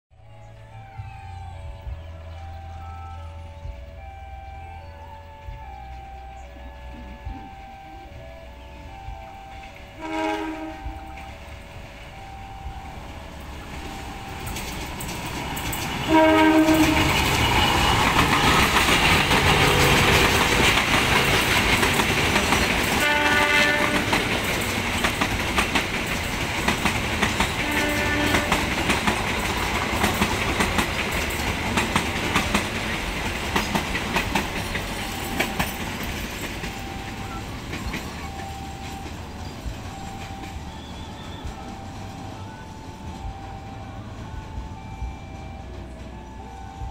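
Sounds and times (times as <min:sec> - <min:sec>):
locomotive horn: 0:00.2 - 0:46.9
train rushing past: 0:00.2 - 0:46.9
wheels clacking over rail joints: 0:09.3 - 0:44.7.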